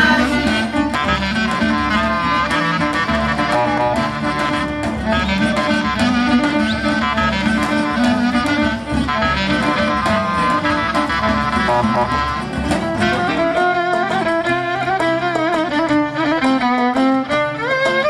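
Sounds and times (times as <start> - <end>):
steady drum beat: 0.0 - 13.7
fiddle-like melody: 0.0 - 18.0
plucked strings: 0.0 - 18.0.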